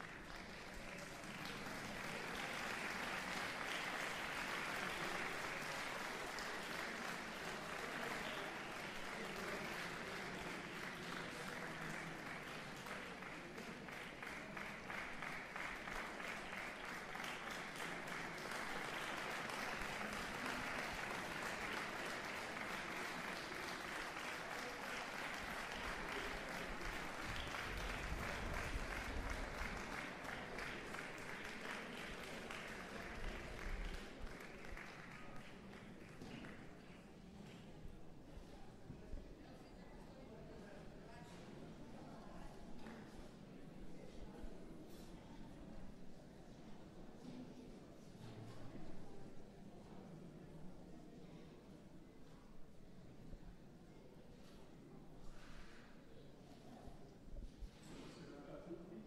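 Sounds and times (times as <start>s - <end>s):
audience applauding: 0.0s - 36.7s.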